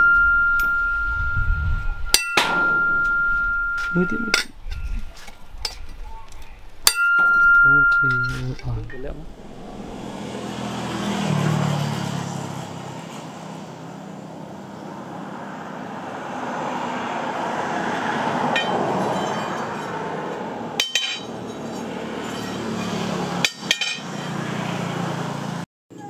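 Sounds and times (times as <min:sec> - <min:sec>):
metal spring clinking on anvil: 0:02.1 - 0:04.8, 0:06.8 - 0:08.7, 0:20.8 - 0:24.4.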